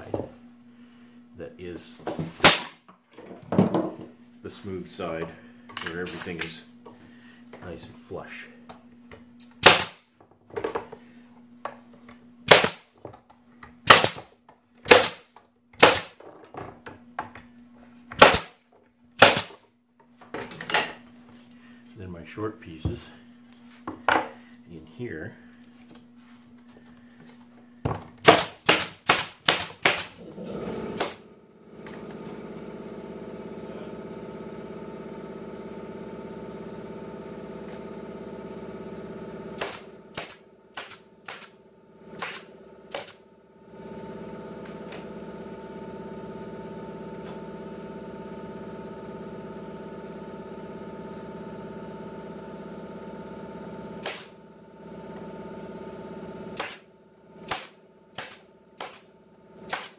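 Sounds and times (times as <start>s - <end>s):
machine hum: 0.0s - 15.0s, 15.7s - 59.8s
nail gun shots into wood: 2.4s - 2.8s, 9.4s - 10.0s, 12.4s - 12.9s, 13.8s - 16.2s, 18.2s - 18.6s, 19.2s - 19.6s, 28.2s - 30.2s, 31.0s - 31.2s, 39.6s - 41.6s, 42.2s - 43.2s, 54.0s - 54.4s, 56.6s - 59.1s, 59.7s - 59.9s.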